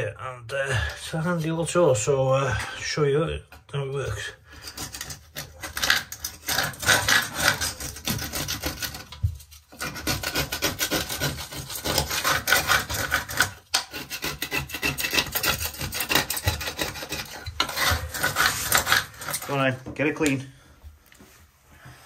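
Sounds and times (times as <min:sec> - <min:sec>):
tool scraping sealant: 0:00.8 - 0:03.1, 0:03.7 - 0:20.4.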